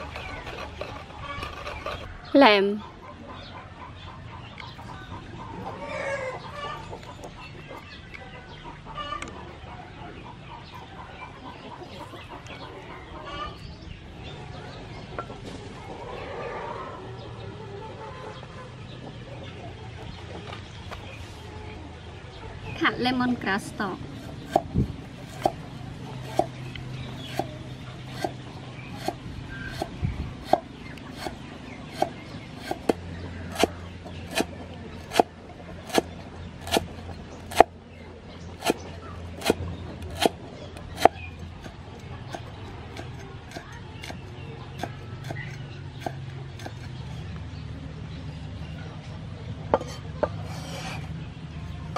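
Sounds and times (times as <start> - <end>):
chickens clucking: 0.0 - 51.9
cleaver chopping on wooden board: 29.0 - 36.9, 37.5 - 37.7, 38.6 - 38.8, 39.4 - 44.2.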